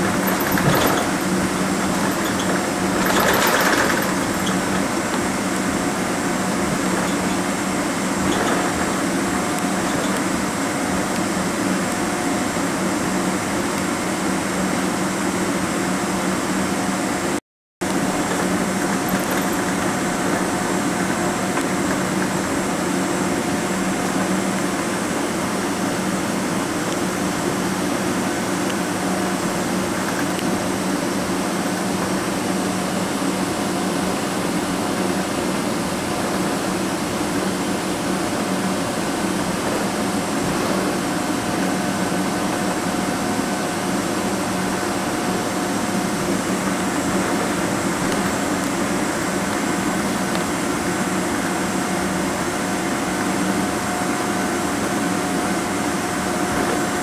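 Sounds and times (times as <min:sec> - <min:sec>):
airplane cabin rushing hum: 0:00.0 - 0:12.6.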